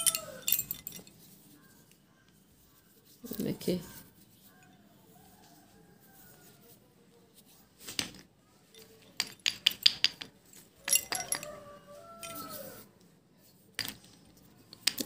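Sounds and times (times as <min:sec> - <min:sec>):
slate pieces clinking: 0:00.0 - 0:01.2, 0:08.0 - 0:11.6, 0:12.2 - 0:12.8.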